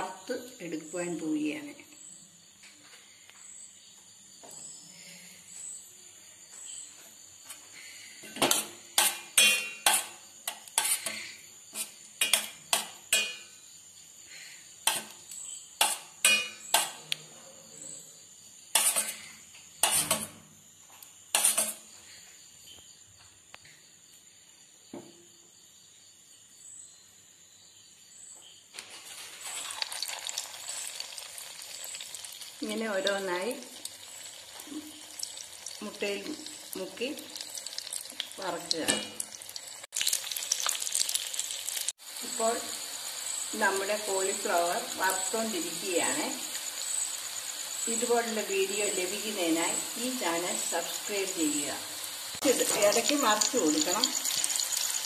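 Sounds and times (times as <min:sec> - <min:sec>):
food sizzling in hot oil: 0:07.8 - 0:17.0, 0:18.4 - 0:20.3, 0:21.2 - 0:21.9, 0:28.8 - 0:55.0
metal spoon clinking against steel bowl: 0:09.4 - 0:10.0, 0:16.2 - 0:16.9.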